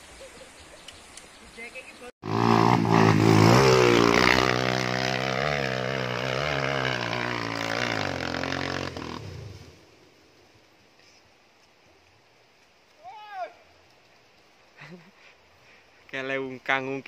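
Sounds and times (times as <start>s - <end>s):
dirt bike engine revving: 2.2s - 9.8s.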